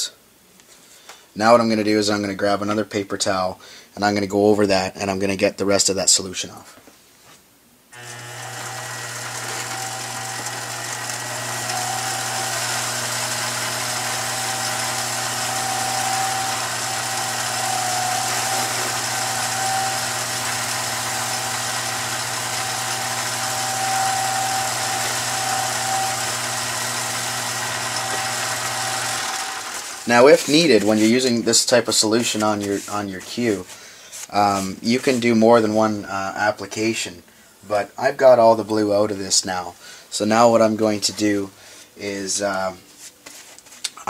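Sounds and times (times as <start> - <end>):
lathe humming: 8.0 - 31.0
paper towel wiping shaft: 8.1 - 35.4.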